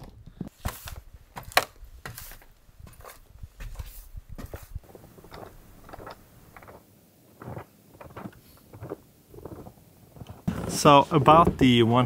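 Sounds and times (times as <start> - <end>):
footsteps crunching in snow: 0.6 - 5.0.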